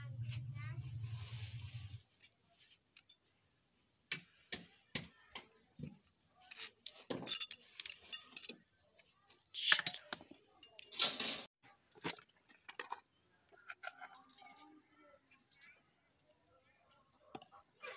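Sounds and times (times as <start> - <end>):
insect chirring: 0.0 - 17.9
rustle: 0.3 - 3.0
metal tools clinking: 6.5 - 8.6.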